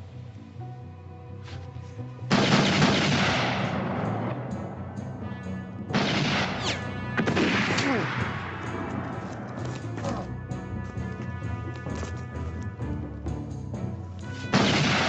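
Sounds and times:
low musical drone: 0.0s - 15.0s
echoing gunshots: 2.3s - 4.5s, 5.9s - 8.9s, 14.5s - 15.0s.

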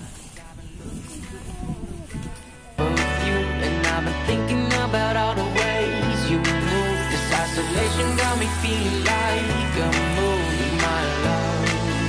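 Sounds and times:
pop music with steady beat: 2.8s - 12.0s.

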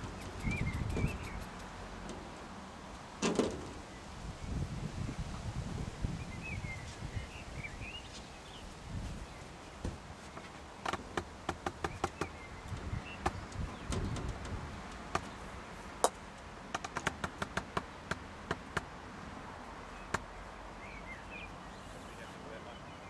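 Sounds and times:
sharp clicks and taps: 16.0s - 18.9s.

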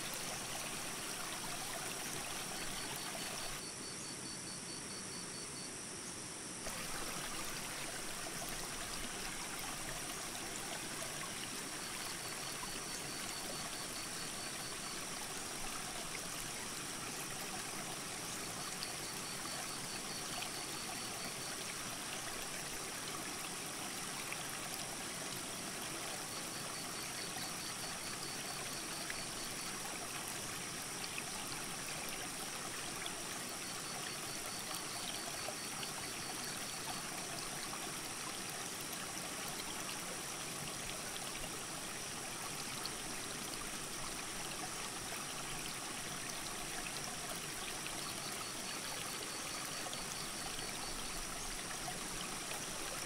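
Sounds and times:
creek rushing over rocks: 0.0s - 3.6s, 6.7s - 11.9s.

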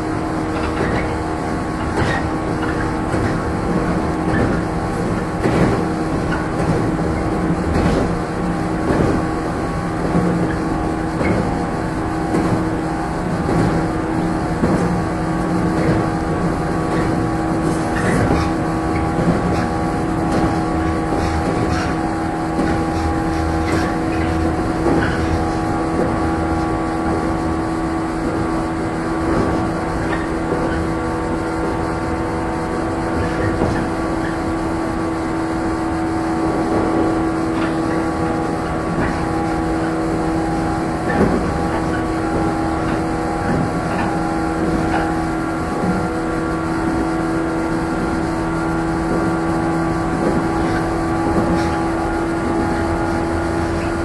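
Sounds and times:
traction motors humming: 0.0s - 54.0s
wheels rumbling: 0.0s - 54.0s
track knocks: 1.8s - 27.4s, 36.4s - 47.2s.

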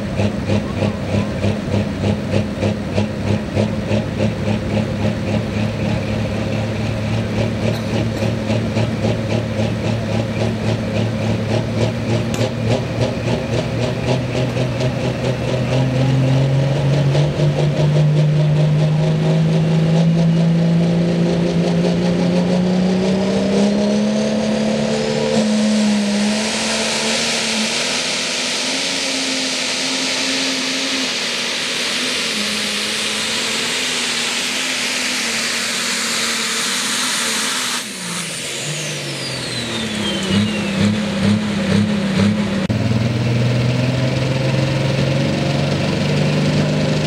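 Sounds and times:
pulling tractor engine at full power: 0.0s - 47.0s
tractor engine revving and idling: 0.0s - 47.0s
high hissing whine: 24.8s - 41.2s.

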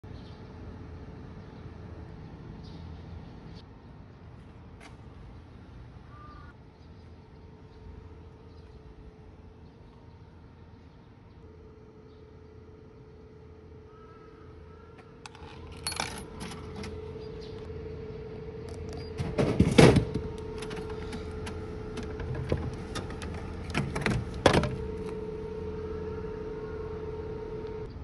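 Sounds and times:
steady hum: 0.1s - 28.0s
coin mechanism clicking: 15.2s - 17.0s.

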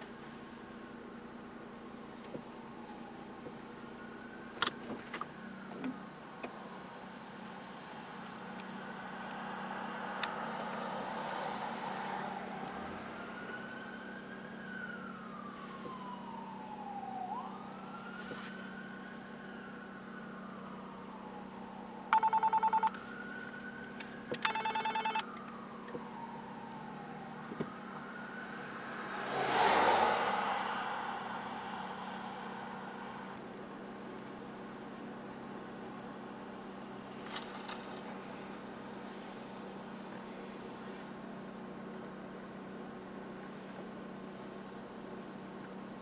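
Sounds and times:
police siren wailing: 2.5s - 4.6s, 6.6s - 37.7s
harsh pulsing siren tone: 6.8s - 34.8s
steady low hum: 30.0s - 37.2s.

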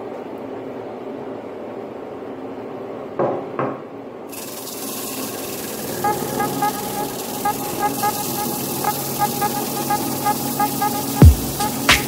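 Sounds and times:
board sanding hiss: 4.3s - 12.0s
drum sander motor humming: 4.3s - 12.0s.

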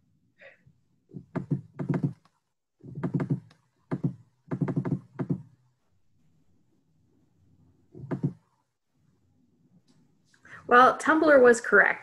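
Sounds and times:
rapid knocking taps: 1.2s - 5.5s, 8.0s - 8.4s.

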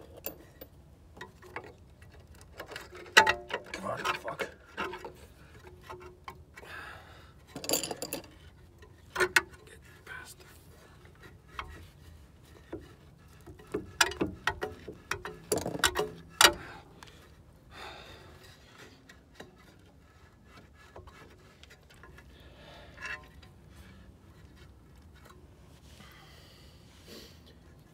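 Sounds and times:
metal parts clicking and knocking: 0.0s - 6.6s, 7.4s - 9.6s, 11.0s - 16.6s.

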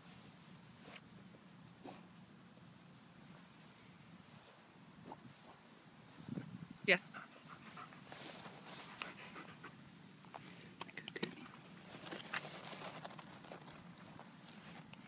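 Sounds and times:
dog panting: 7.1s - 9.9s
dog sniffing: 7.1s - 10.6s.

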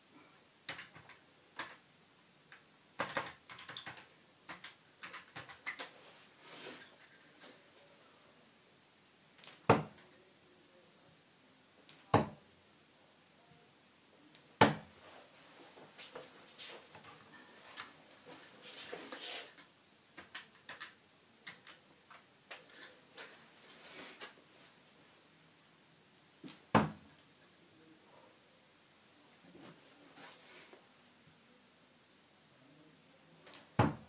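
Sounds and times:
darts thudding into dartboard: 9.4s - 10.0s, 11.9s - 12.4s, 14.6s - 14.9s, 26.5s - 27.1s, 33.5s - 34.0s.

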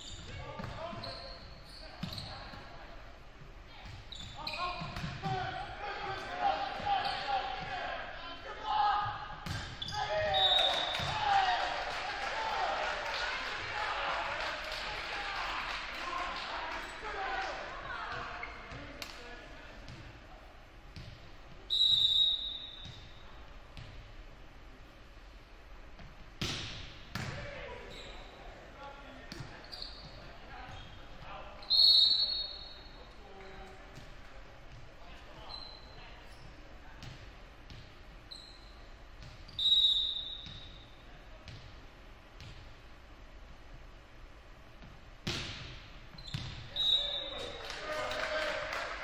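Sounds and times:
volleyball bouncing on gym floor: 9.4s - 11.3s, 26.0s - 27.5s, 42.4s - 42.7s, 44.8s - 46.9s
referee's whistle blast: 21.7s - 22.8s, 31.6s - 32.8s.

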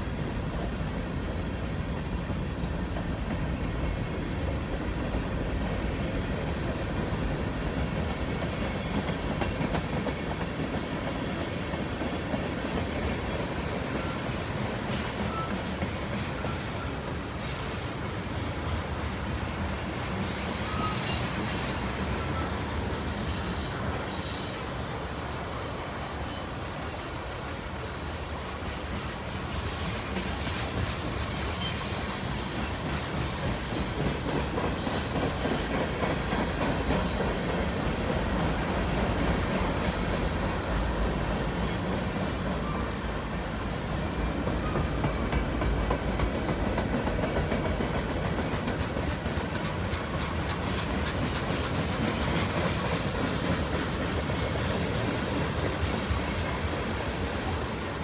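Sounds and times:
freight train wheels clicking over rail joints: 0.1s - 25.0s, 28.3s - 42.8s, 43.7s - 58.0s
high wheel squeal: 20.2s - 24.7s.

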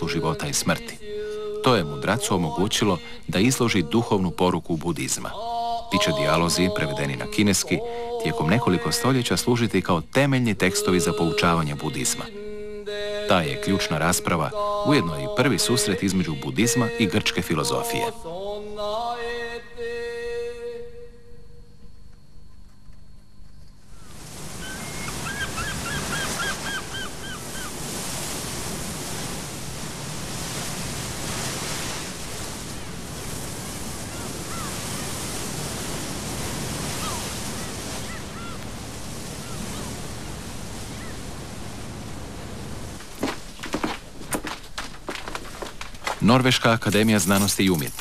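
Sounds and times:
wind: 19.0s - 48.0s
short chirping calls: 23.9s - 27.8s
water rushing past boat: 24.1s - 45.4s.

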